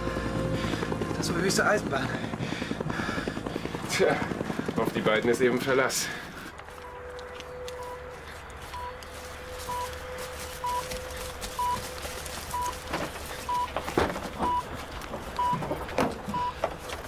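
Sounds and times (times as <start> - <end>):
patient monitor beeping: 6.8 - 12.9, 13.5 - 13.8, 15.4 - 15.6, 16.3 - 16.6
knocks and clatters: 12.8 - 17.0.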